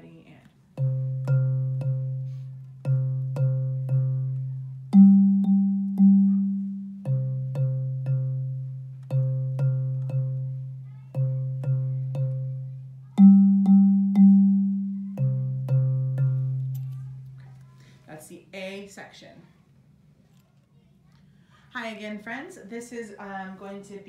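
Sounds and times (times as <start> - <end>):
bass xylophone notes: 0.7 - 17.5.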